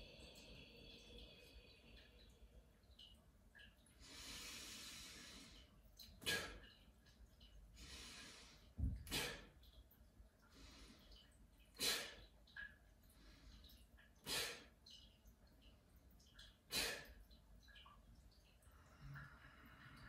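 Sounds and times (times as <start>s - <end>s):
person breathing rhythmically: 3.9s - 6.8s, 7.7s - 9.6s, 10.4s - 12.3s, 13.0s - 14.8s.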